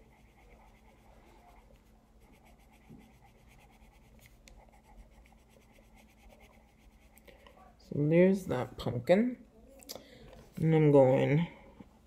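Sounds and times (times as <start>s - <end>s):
pencil scratching on paper: 0.0s - 7.5s.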